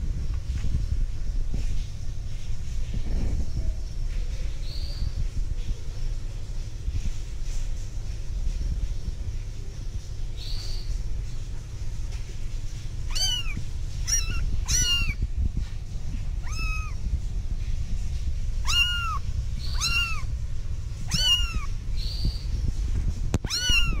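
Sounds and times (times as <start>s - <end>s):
steady low rumble: 0.0s - 24.0s
kittens mewing: 13.0s - 15.4s, 16.2s - 17.1s, 18.5s - 20.4s, 21.0s - 22.4s, 23.4s - 24.0s.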